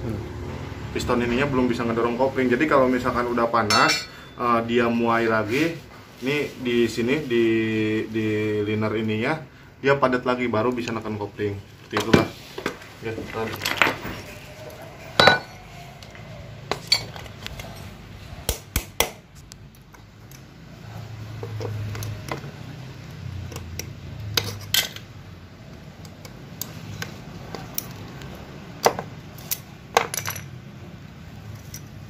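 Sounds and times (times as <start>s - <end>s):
metal parts clinking in tray: 24.4s - 25.1s, 29.4s - 30.5s.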